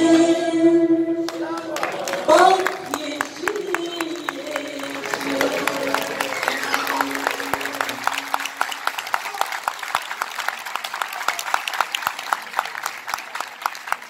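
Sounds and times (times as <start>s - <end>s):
many hands clapping: 1.2s - 14.0s
held musical note: 3.5s - 9.0s.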